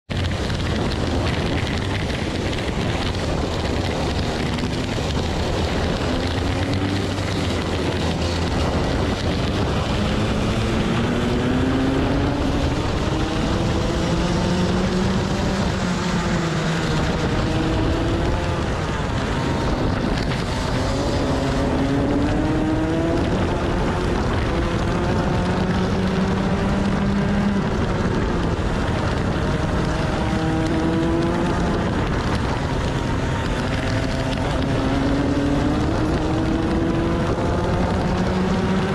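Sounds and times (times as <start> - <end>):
kart engine accelerating and slowing: 0.1 - 38.9
wind noise: 0.1 - 38.9.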